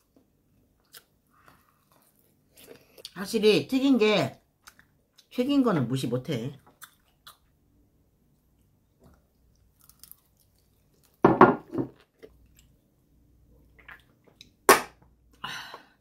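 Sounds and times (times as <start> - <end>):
chewing: 0.8 - 3.2, 6.6 - 7.5.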